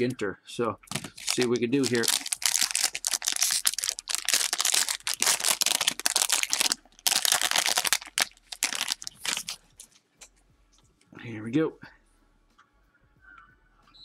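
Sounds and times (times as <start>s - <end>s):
foil wrapper tearing and crinkling: 0.9s - 9.6s.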